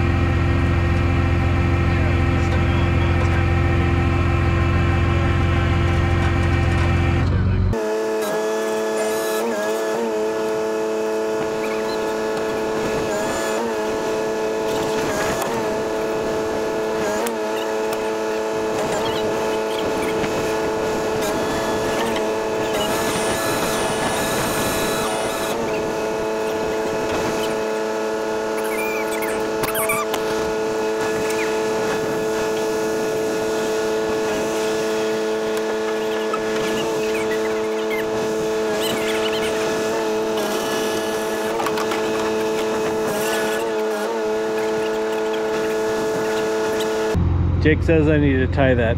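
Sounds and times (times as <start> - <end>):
engine running steadily: 0.0 - 48.9.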